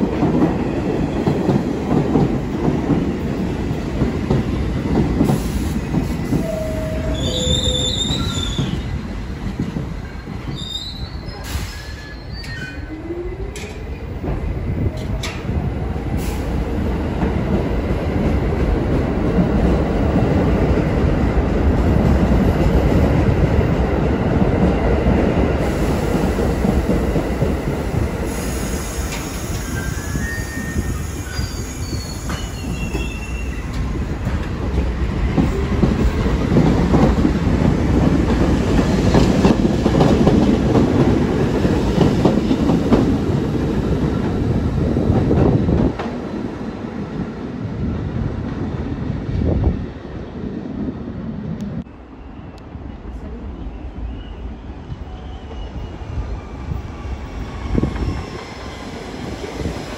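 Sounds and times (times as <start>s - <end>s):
subway train wheels rumbling: 0.0s - 59.9s
wheel squeal: 29.7s - 33.8s.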